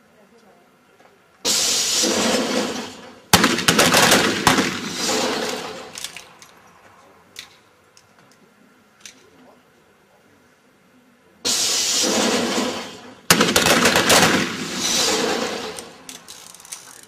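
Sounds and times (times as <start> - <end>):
pistol shots ringing: 2.1 - 6.1, 12.1 - 16.1.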